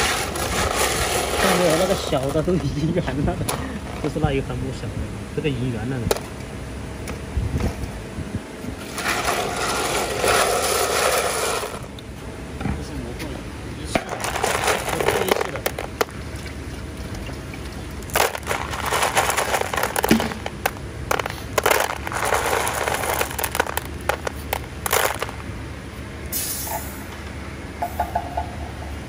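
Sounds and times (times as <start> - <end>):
steady low hum: 0.0 - 29.0
stone beads clattering in colander: 8.9 - 11.9, 14.0 - 16.1, 18.0 - 25.4.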